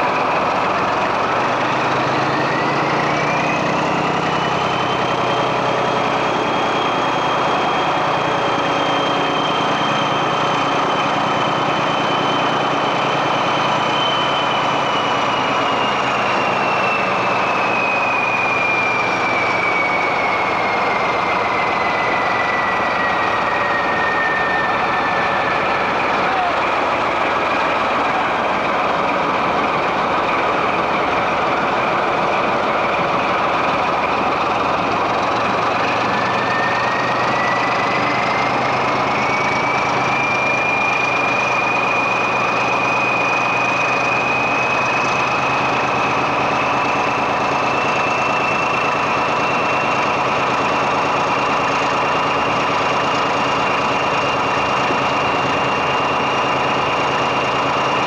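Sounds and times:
high whine: 0.0s - 58.0s
locomotive diesel engine: 0.0s - 58.0s.

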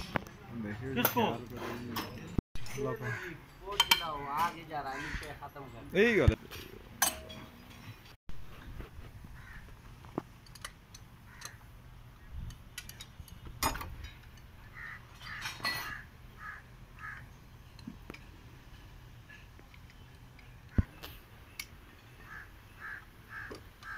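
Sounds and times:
hand tool clinking on metal: 1.0s - 4.7s, 5.8s - 8.2s
birds calling: 2.2s - 8.2s, 14.6s - 18.3s, 19.2s - 23.9s.

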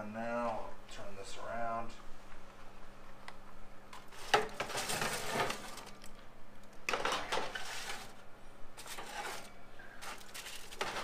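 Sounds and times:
baking sheet scraping on oven rack: 4.0s - 5.9s, 6.9s - 8.2s, 8.8s - 11.0s
foil crinkling: 4.0s - 6.2s, 8.8s - 11.0s.

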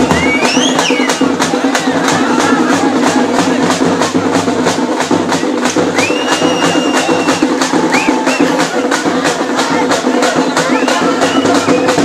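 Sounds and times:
long high whistle: 0.0s - 1.2s, 6.0s - 8.6s
short rising whistle: 0.0s - 1.3s, 6.0s - 8.6s
fast steady drumbeat: 0.0s - 12.0s.

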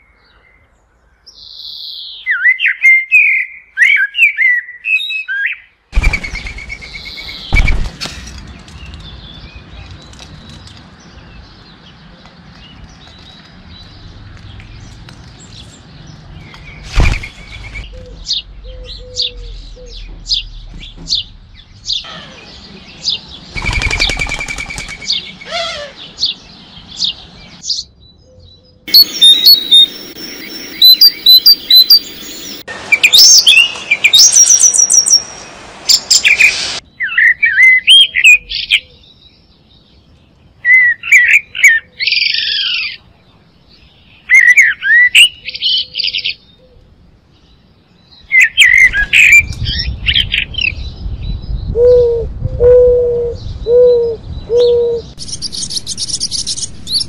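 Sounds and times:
songbirds singing and chirping: 0.0s - 57.0s.

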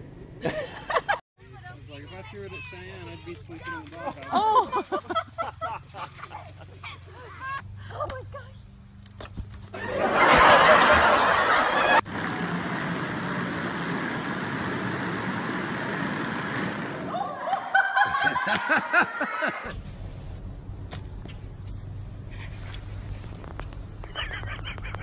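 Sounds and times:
person laughing: 4.2s - 8.3s, 17.1s - 19.7s, 24.1s - 25.0s
low hum: 19.7s - 25.0s.

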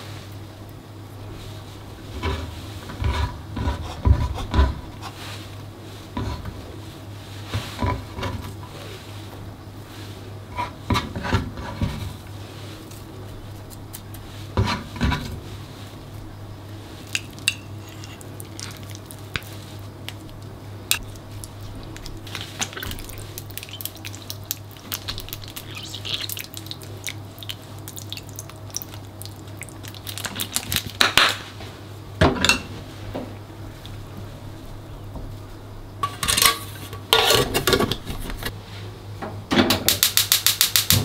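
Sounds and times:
kitchen utensils clattering: 36.0s - 38.2s.

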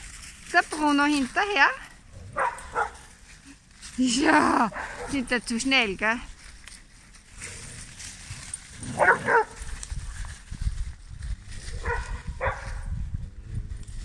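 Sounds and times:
dog barking: 2.3s - 3.0s, 4.7s - 5.2s, 8.9s - 9.6s, 11.8s - 12.9s.

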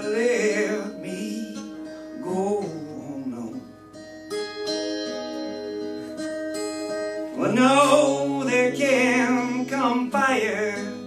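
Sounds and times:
man singing: 0.0s - 3.7s, 7.3s - 11.0s
acoustic guitar: 0.0s - 11.0s.

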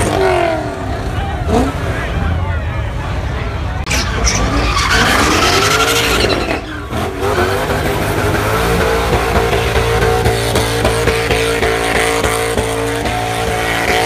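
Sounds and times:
car tyres squealing: 3.8s - 14.0s
car engine revving hard: 3.9s - 14.0s.

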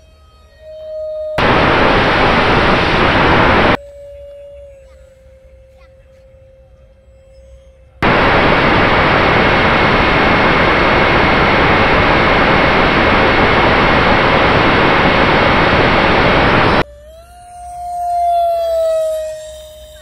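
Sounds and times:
jet roar with faint whine: 1.4s - 3.8s, 8.0s - 16.8s.

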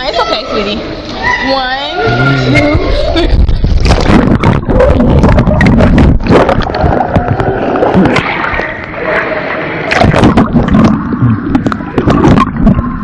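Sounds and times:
underwater sloshing and bubbling: 2.3s - 13.0s.

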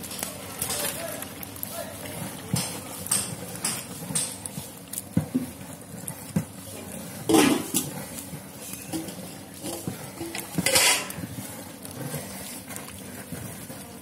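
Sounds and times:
boiling food bubbling: 0.0s - 14.0s
ladle clinking in metal pot: 7.2s - 7.9s, 8.6s - 11.3s.

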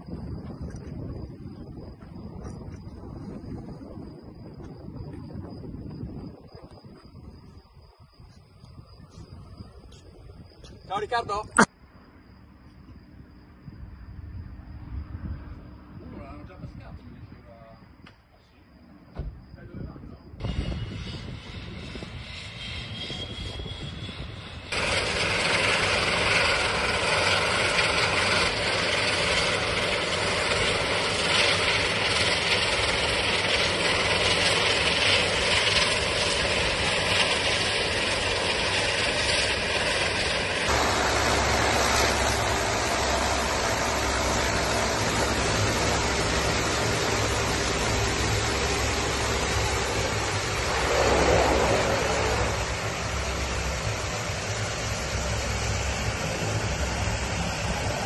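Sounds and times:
turboprop engines running: 19.4s - 58.0s.

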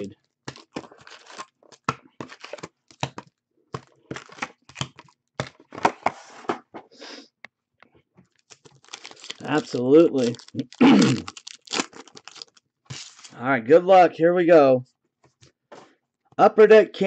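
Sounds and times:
foil packs crinkling: 0.0s - 5.8s, 8.3s - 13.4s.

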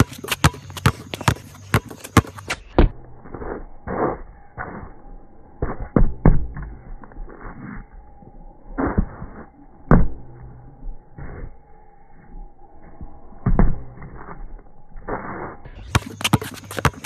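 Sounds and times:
basketballs bouncing on concrete: 0.0s - 3.0s, 5.6s - 6.8s, 15.8s - 17.0s.

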